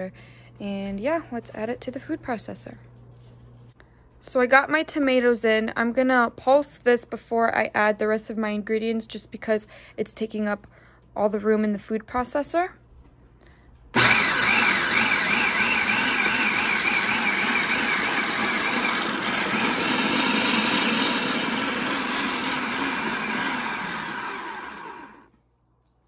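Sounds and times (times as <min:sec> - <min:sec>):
food processor motor whirring: 0:14.0 - 0:25.3.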